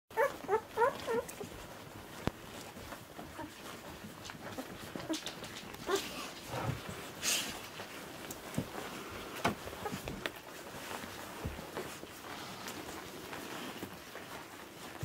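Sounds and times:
puppies squeaking and whimpering: 0.1s - 6.3s, 9.6s - 11.2s
soft rustling: 0.1s - 15.0s.

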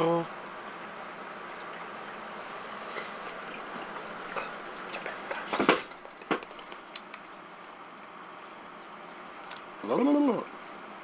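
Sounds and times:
steady hiss: 1.2s - 11.0s
short clicks and smacks: 5.0s - 7.3s.

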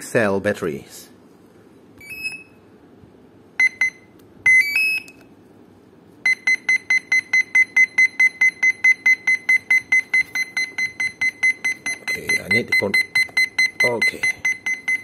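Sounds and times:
electronic speed controller beeps: 3.6s - 5.2s, 6.3s - 15.0s
fast steady beeping: 6.3s - 15.0s.

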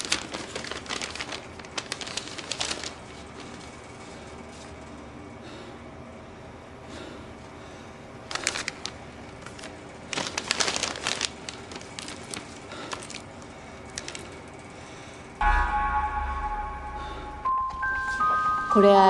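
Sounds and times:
crinkling handling noise: 0.0s - 4.8s, 8.2s - 14.7s
soft chime-like music: 15.4s - 19.0s.

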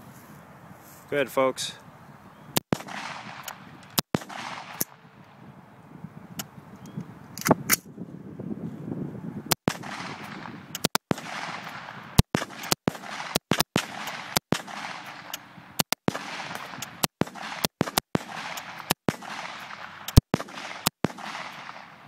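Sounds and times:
rifle shots with echo: 2.6s - 5.3s, 9.5s - 22.0s.

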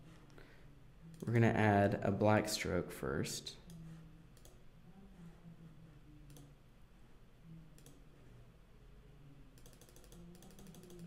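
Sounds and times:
faint low hum: 0.0s - 11.0s
soft mouse clicks: 1.1s - 1.4s, 3.6s - 4.6s, 6.3s - 6.6s, 7.7s - 8.1s, 9.6s - 11.0s.

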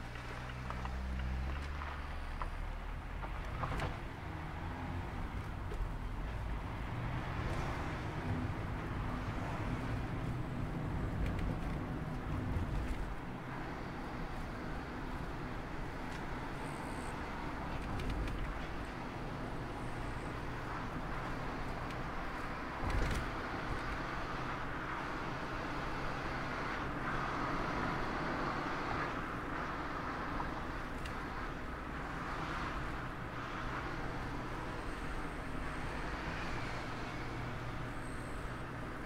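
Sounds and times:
low engine hum: 0.0s - 39.0s
tyre and wind noise: 20.6s - 24.6s.

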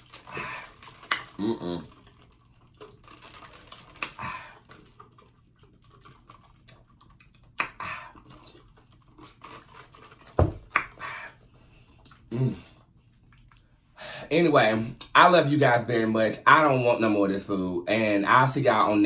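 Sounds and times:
mouth clicks: 0.1s - 1.9s, 6.7s - 8.3s
breaths: 0.2s - 1.0s, 4.0s - 4.9s, 13.9s - 14.3s
dull thump: 10.4s - 10.7s.

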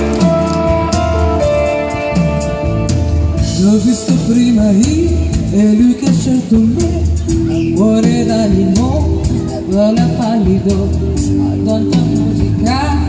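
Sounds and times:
electric guitars: 0.0s - 13.0s
keyboard: 0.0s - 13.0s
woman singing: 3.5s - 13.0s.

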